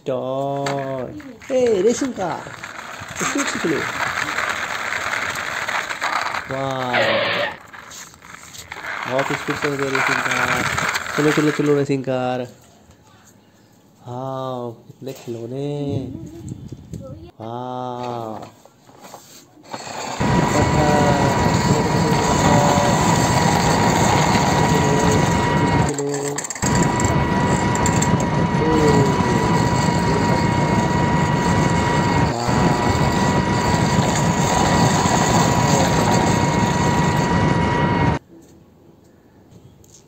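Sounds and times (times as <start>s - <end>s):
toy engine running with whine: 0.6s - 11.9s, 19.6s - 38.2s.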